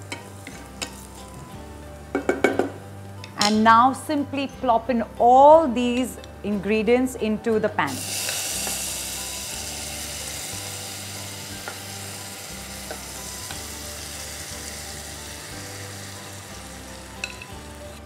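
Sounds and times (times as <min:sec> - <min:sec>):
vegetables sizzling in hot oil: 0:07.9 - 0:18.0.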